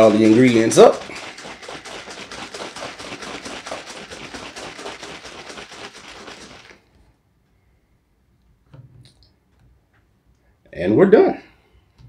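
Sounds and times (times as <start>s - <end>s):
liquid sloshing in shaken bottle: 0.0s - 7.0s.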